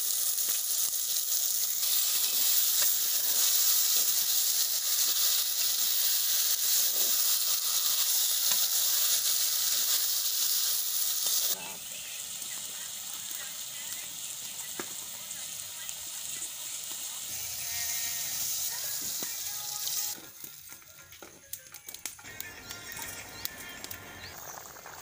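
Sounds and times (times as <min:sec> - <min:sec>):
chicken sizzling in pot: 0:00.0 - 0:21.2, 0:22.2 - 0:25.0.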